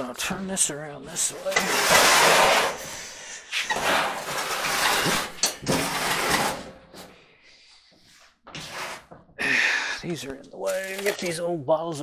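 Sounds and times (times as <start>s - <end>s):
dryer scraping across floor: 1.4s - 2.9s, 3.7s - 6.8s.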